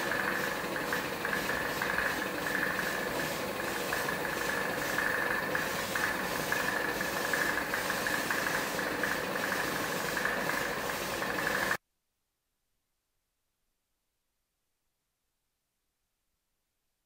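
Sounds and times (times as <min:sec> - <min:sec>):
mechanical hum: 0:00.0 - 0:11.8
spray gun hissing: 0:00.0 - 0:11.8.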